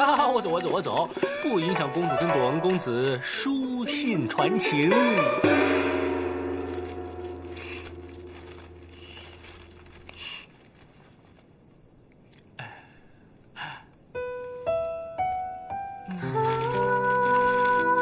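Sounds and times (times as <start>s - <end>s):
thin high tone: 0.2s - 10.2s
struck notes ringing melody: 1.2s - 10.0s
soft rustles: 6.4s - 11.8s, 16.3s - 18.0s.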